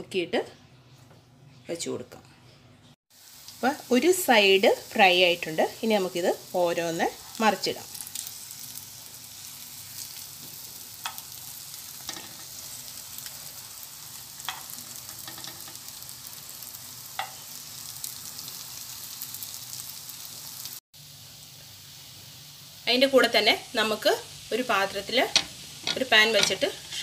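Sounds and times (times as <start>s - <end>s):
bread sizzling in a frying pan: 3.1s - 27.0s.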